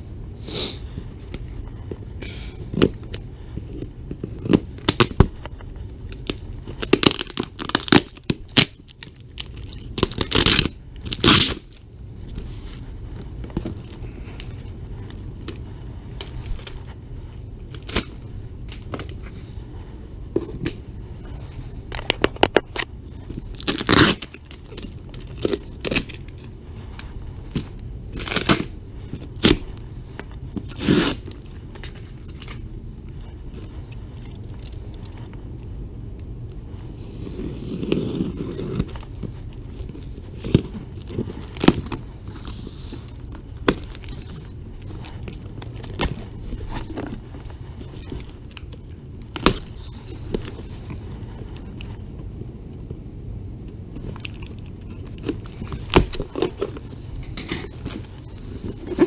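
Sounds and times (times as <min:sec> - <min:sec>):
low background hum: 0:00.0 - 0:59.0
cardboard scraping and rustling: 0:36.9 - 0:52.1, 0:54.0 - 0:59.0.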